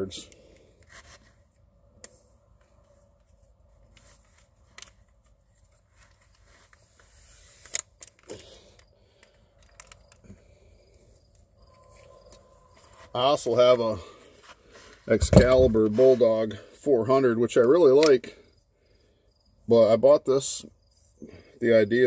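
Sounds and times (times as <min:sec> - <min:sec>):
handling clicks and rattles: 0:07.6 - 0:10.3.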